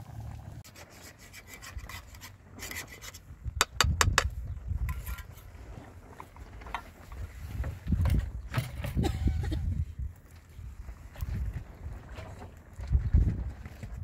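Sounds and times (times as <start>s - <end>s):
metal spoon scraping a pot: 0.6s - 3.2s
wind rumble on microphone: 3.3s - 14.0s.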